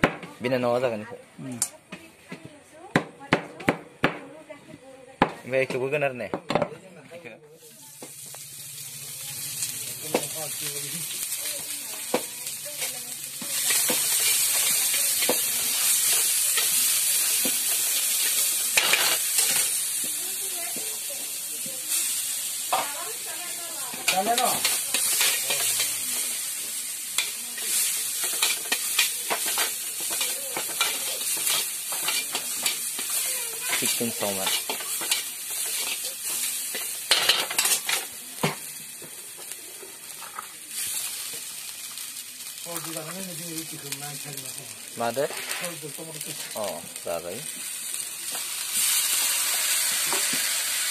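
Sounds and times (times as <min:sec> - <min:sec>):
onions sizzling in a wok: 0:00.0 - 0:50.9
metal ladle scraping a wok: 0:27.1 - 0:38.1, 0:45.3 - 0:45.8.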